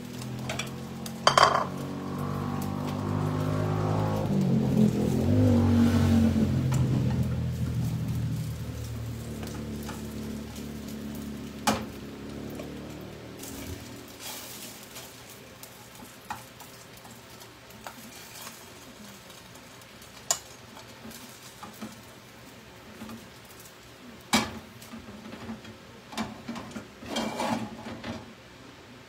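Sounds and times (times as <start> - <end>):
faint sizzle: 0.0 - 29.0
utensil and dish clatter: 0.2 - 1.9, 24.3 - 28.3
chopsticks scraping frying pan: 0.2 - 5.4, 12.5 - 22.1, 27.0 - 27.8.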